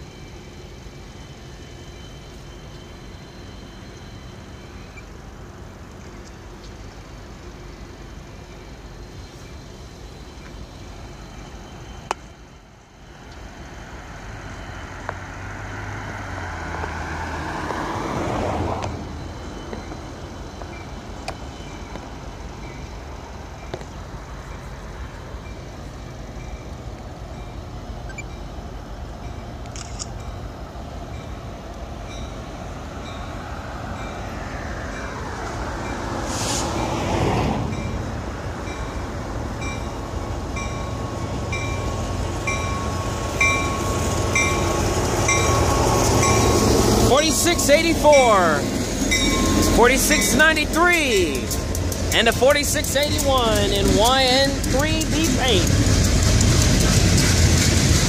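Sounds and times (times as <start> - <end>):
diesel locomotive hum: 0.0 - 58.0
road vehicles passing: 13.2 - 29.7, 30.5 - 58.0.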